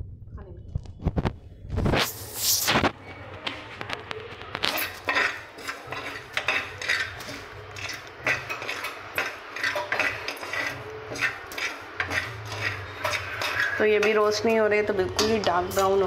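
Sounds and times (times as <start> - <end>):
spoon scraping grain in steel pan: 4.6 - 16.0.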